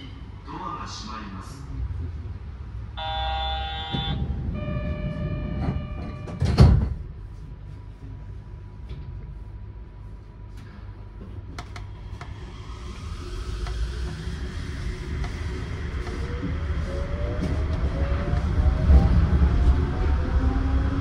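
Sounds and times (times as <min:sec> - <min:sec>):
low rumble of train: 0:00.0 - 0:21.0
electronic door-closing tone: 0:03.0 - 0:06.9
sliding doors shutting with thud: 0:03.9 - 0:07.1.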